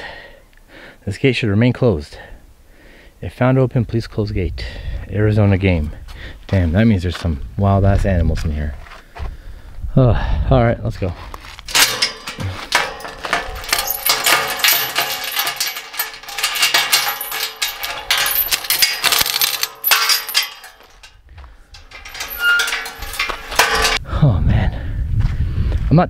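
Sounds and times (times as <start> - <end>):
metallic clinking and jingling: 11.7 - 24.0.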